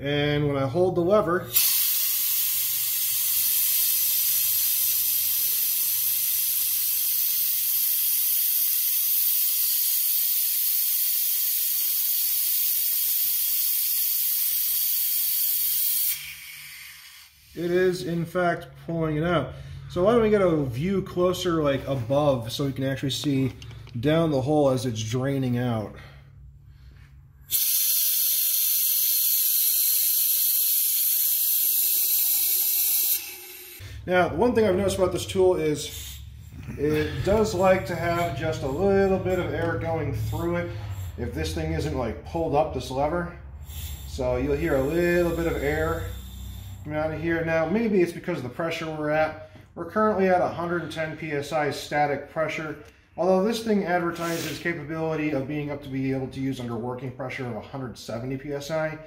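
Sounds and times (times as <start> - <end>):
compressed air hissing: 1.5 - 18.0, 26.0 - 34.1, 34.8 - 42.0, 43.6 - 47.4, 54.1 - 54.8.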